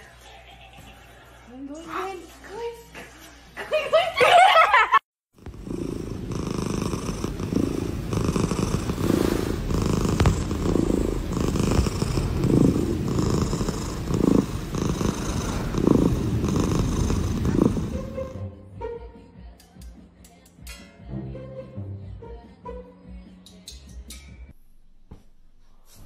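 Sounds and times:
cat purring: 5.4 - 18.4.

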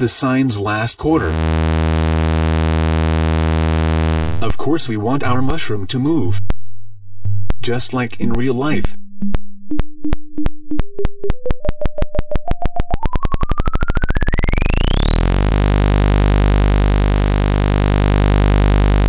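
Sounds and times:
synthesized pulse speeding into buzz: 1.2 - 4.5, 9.0 - 19.0
synth tone rising to high whistle: 9.2 - 17.1.

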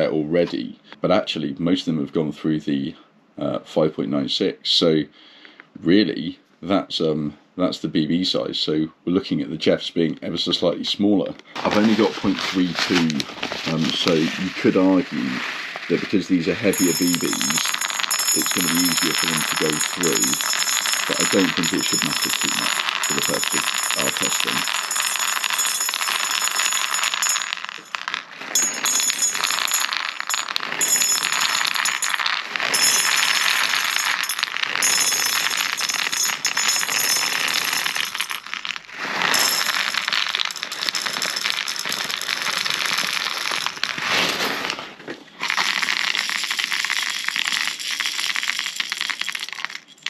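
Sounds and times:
plastic pellets rattling on metal tray: 11.6 - 44.8, 45.4 - 50.0.

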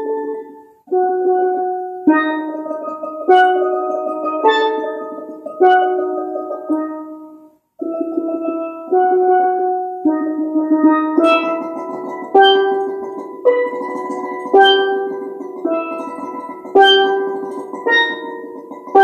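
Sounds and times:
steelpan chords: 0.0 - 19.0.

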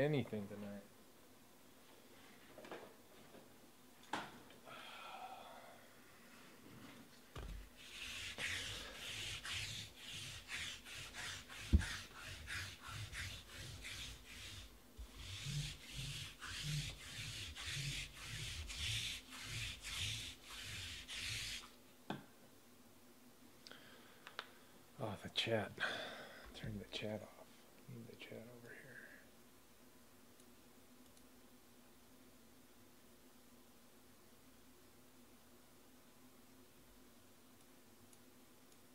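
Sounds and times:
cloth rubbing close to microphone: 7.7 - 21.7.

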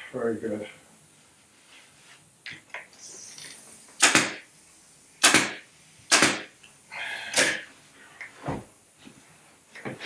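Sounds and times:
pneumatic staple gun shots: 3.3 - 4.5, 5.2 - 6.6, 7.4 - 7.6.

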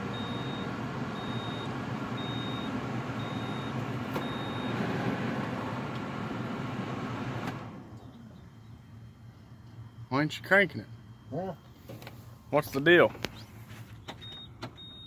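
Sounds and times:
air-conditioning blower whirring: 0.0 - 15.0
high warning beeps: 0.1 - 4.8, 14.2 - 15.0.

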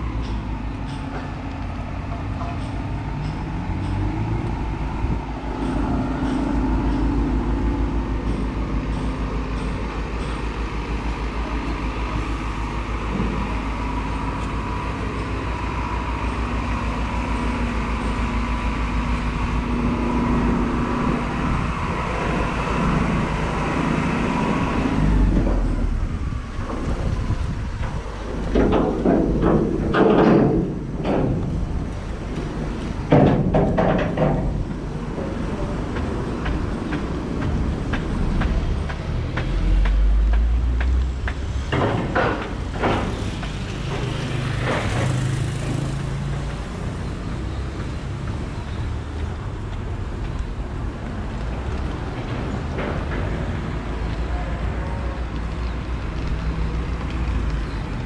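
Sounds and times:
road noise: 0.0 - 58.0
vehicles passing: 0.0 - 58.0
deep rumble: 13.2 - 42.1.

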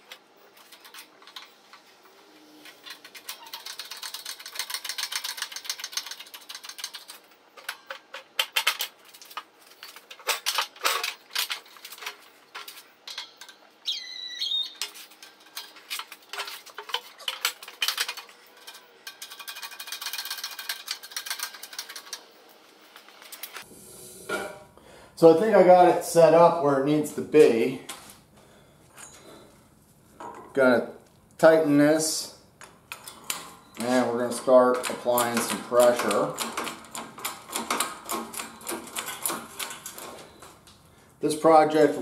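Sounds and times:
short high squeak: 13.9 - 14.8
metal clicks knocks and rattles: 34.3 - 40.6.

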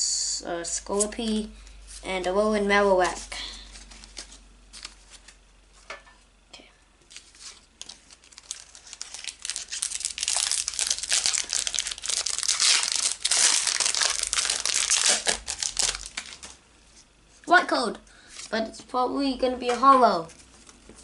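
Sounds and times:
foil wrapper crinkling: 3.0 - 5.4, 7.1 - 16.6.

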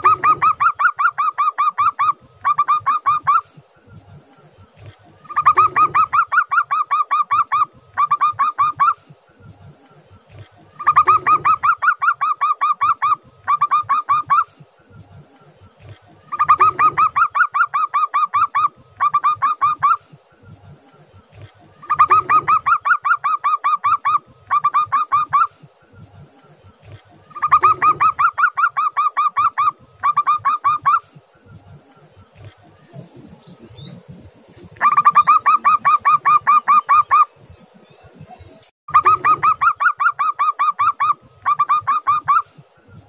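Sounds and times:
dove rapid staccato cooing: 0.0 - 3.7, 4.8 - 9.2, 10.3 - 14.8, 15.8 - 20.3, 21.3 - 25.8, 26.5 - 31.3, 32.0 - 37.4, 38.9 - 42.7.

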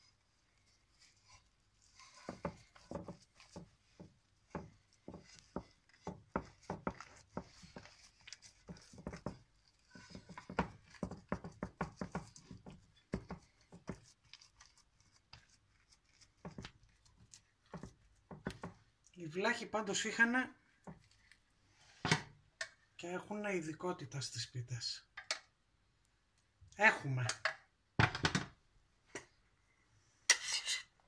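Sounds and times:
hands patting dough in metal pan: 0.0 - 22.8.

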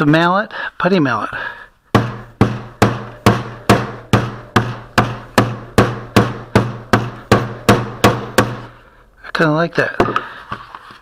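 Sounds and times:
mallet beating putty: 1.9 - 8.8.

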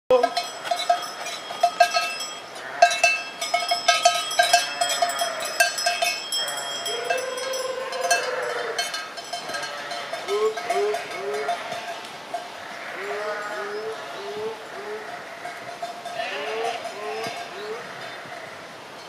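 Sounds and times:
sheep bells clanking: 0.1 - 14.4, 15.0 - 19.0
sheep bleating: 2.6 - 3.1, 4.4 - 5.8, 6.4 - 8.9, 9.5 - 18.5.

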